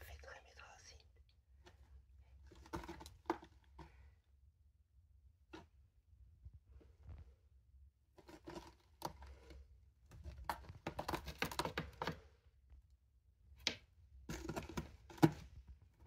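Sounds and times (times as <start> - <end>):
cat claws scratching rope post: 8.2 - 12.2, 14.3 - 15.6.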